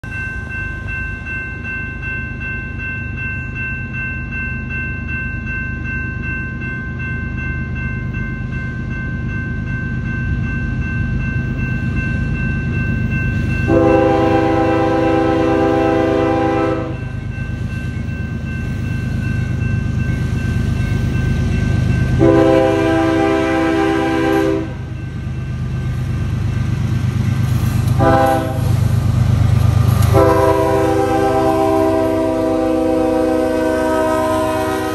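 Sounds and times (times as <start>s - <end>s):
diesel locomotives rumbling: 5.0s - 34.9s
train horn blasts: 13.7s - 17.0s, 22.2s - 24.8s, 28.0s - 28.7s, 30.1s - 34.9s.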